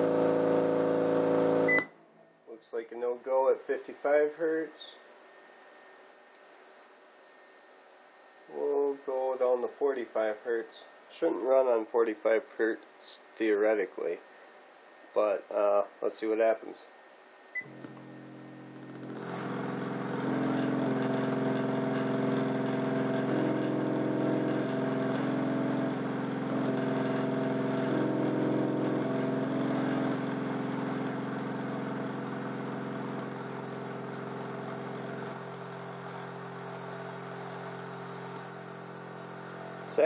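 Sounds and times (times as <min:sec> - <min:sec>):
subwoofer low test tone buzz: 0:00.0 - 0:05.0, 0:17.5 - 0:40.0.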